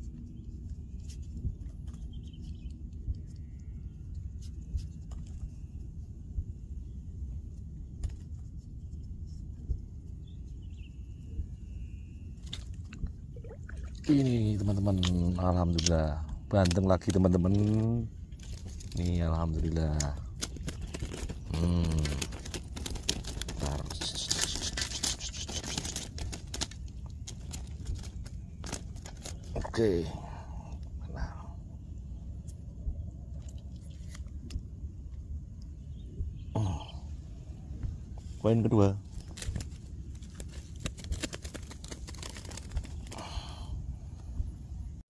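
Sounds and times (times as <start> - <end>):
low outdoor rumble: 0.0 - 45.0
faint bird chirps: 8.8 - 12.6, 35.6 - 39.0
hands handling fishing gear: 20.0 - 29.8, 39.1 - 43.4.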